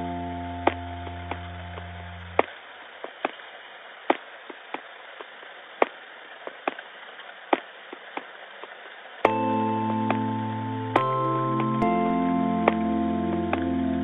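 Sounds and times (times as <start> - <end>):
light hiss: 0.0 - 12.8
held musical chord: 9.3 - 14.0.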